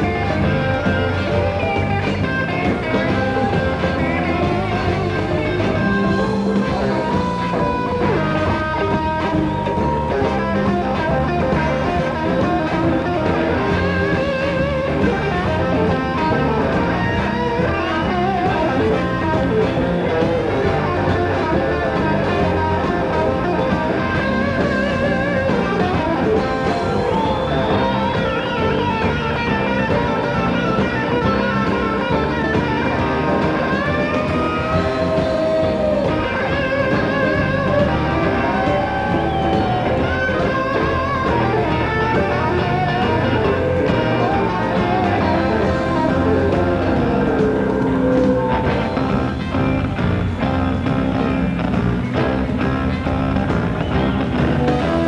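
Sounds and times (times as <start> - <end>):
bass guitar: 0.0 - 55.0
drums: 0.0 - 55.0
electric guitar solo: 0.0 - 55.0.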